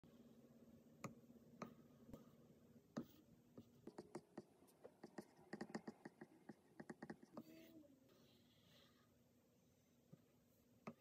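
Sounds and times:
stylus tapping on tablet screen: 2.9 - 7.5.

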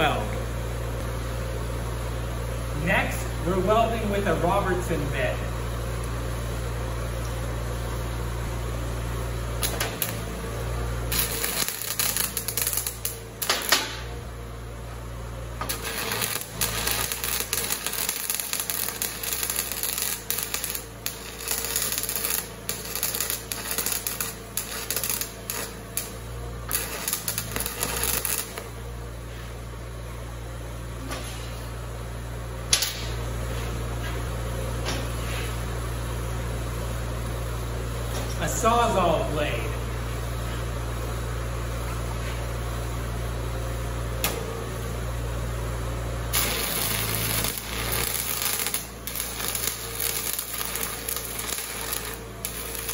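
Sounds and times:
steady low hum: 0.0 - 52.9
welding arc crackling: 9.2 - 14.3, 15.4 - 29.0, 46.2 - 52.9.

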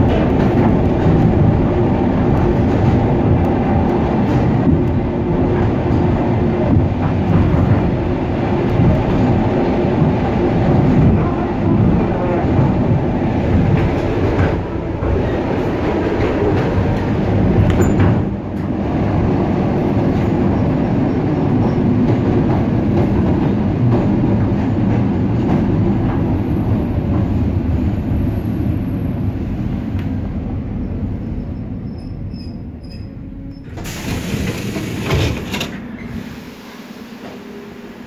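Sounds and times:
train wheels rumbling and clattering: 0.0 - 38.0.

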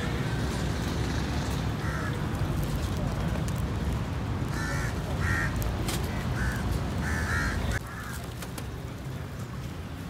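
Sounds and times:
crows cawing: 1.8 - 2.3, 4.5 - 8.3.

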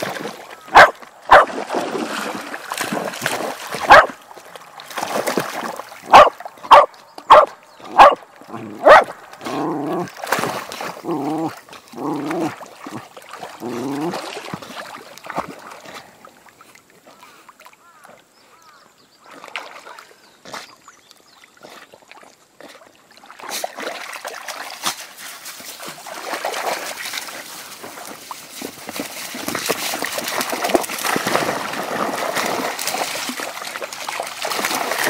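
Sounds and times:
dog barking sharply: 0.7 - 1.5, 3.9 - 4.1, 6.1 - 8.2, 8.8 - 9.1.

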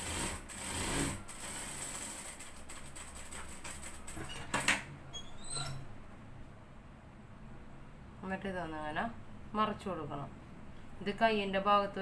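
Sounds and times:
industrial sewing machine running: 0.0 - 3.1.

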